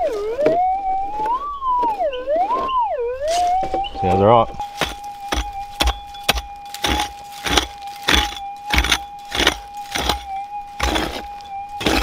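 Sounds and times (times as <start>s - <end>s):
pick striking gravel: 4.6s - 12.0s.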